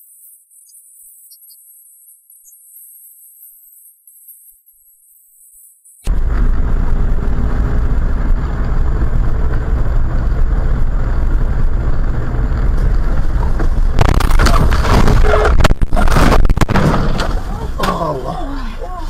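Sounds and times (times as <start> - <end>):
rush of noise with knocks: 6.1 - 17.6
car road and engine noise: 6.1 - 19.0.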